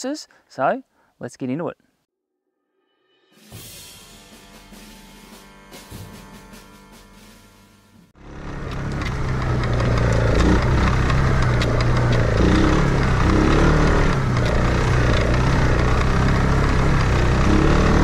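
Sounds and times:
quad bike engine revving: 8.2 - 18.0
clicks and rattles: 8.6 - 16.9.

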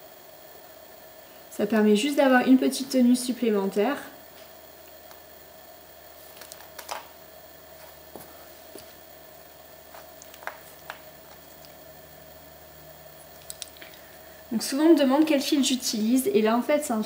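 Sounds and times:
faint steady hum: 0.0 - 17.0
wooden bobbins clicking together: 13.4 - 14.0.

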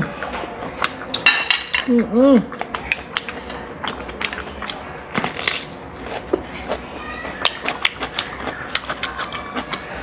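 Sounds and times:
wet chewing: 1.9 - 10.0
biting into crisp cucumber: 2.6 - 6.8.

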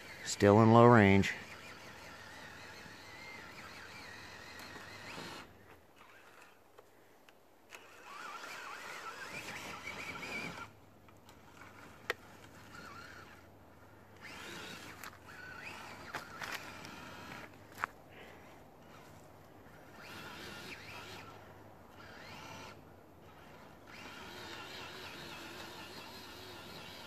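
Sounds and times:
toy car motor whining: 0.0 - 6.6, 7.7 - 27.0.

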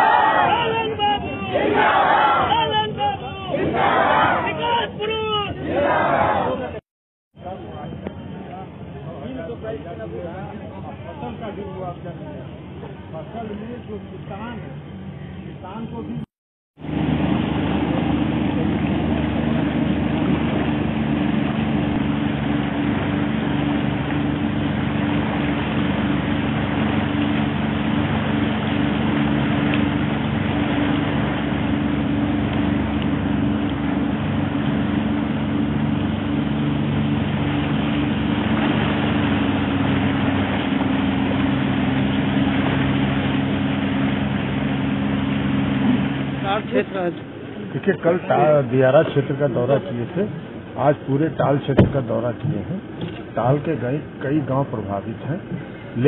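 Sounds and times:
water rushing past hull: 0.0 - 15.9, 16.8 - 56.0
outboard motor running: 16.8 - 56.0.

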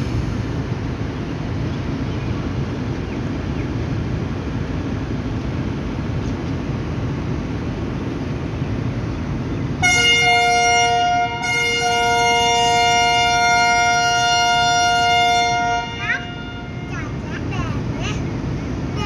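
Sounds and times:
train rumbling: 0.0 - 19.0
train multi-tone air horn: 9.8 - 16.9.

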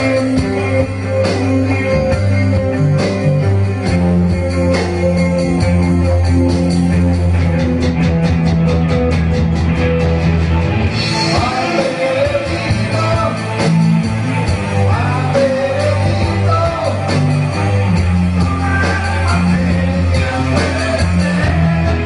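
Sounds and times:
rock band playing live: 0.0 - 22.0
person singing: 11.1 - 13.8, 14.6 - 22.0.

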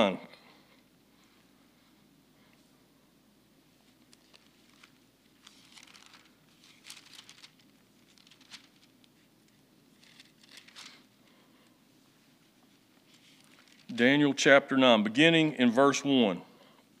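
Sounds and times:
low room hum: 0.0 - 17.0
paper pages rustling: 3.9 - 11.4, 12.5 - 14.0.

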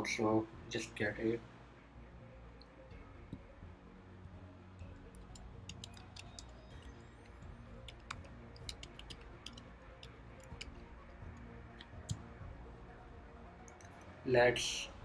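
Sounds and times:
typing on computer keyboard: 5.2 - 6.9, 7.8 - 10.8.

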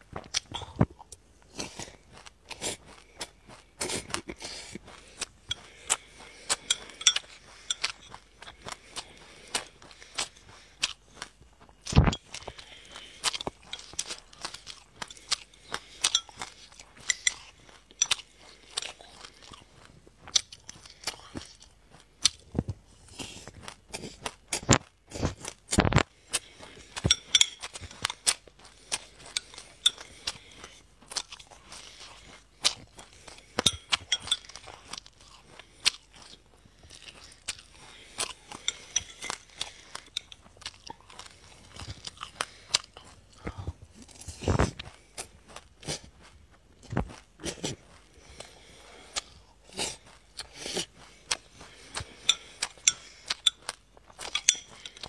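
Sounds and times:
crunching and chewing seeds: 0.0 - 55.0
ceramic spoon scraping in glass mug: 6.6 - 8.2, 38.6 - 39.4, 54.3 - 55.0.

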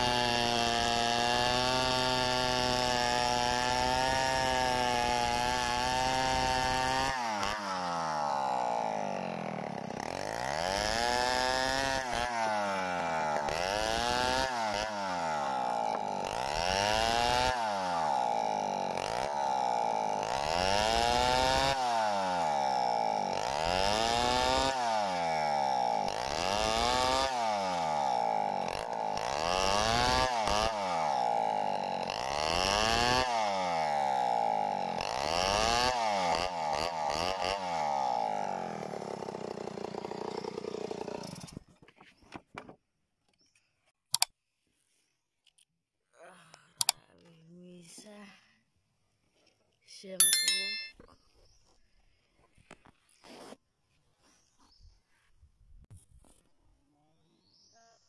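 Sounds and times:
chainsaw cutting through log: 0.0 - 41.7.

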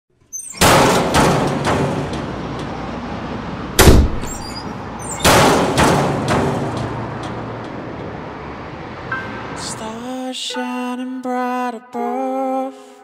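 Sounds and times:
heavy ringing impacts: 0.5 - 2.8, 3.8 - 8.3.

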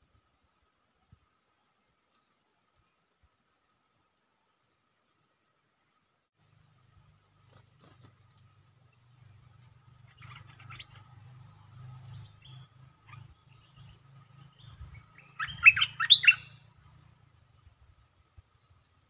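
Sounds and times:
bird chirping: 6.5 - 19.0.

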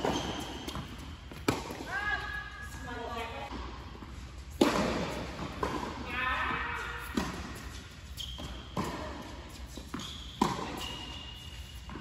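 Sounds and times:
shoe squeaks on court: 0.0 - 1.5, 7.1 - 12.0
tennis ball hits and bounces: 0.0 - 1.9, 4.5 - 6.0, 7.0 - 7.6, 8.4 - 11.1.

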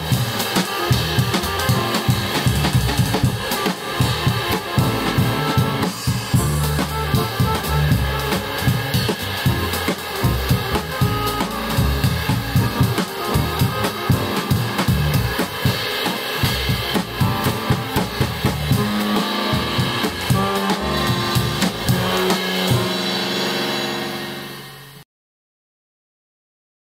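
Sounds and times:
drum kit: 0.0 - 25.0
accordion: 0.5 - 15.8
plucked double bass: 6.4 - 8.6, 9.2 - 14.1, 16.6 - 22.1.

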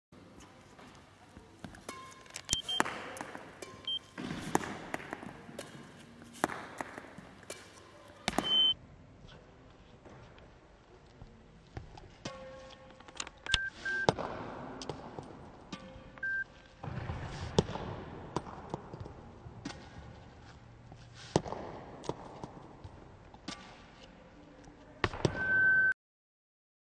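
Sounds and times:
racket striking shuttlecocks: 1.6 - 8.7, 12.2 - 12.9, 14.1 - 16.2, 16.8 - 20.1
shoes squeaking on floor: 1.7 - 8.8.

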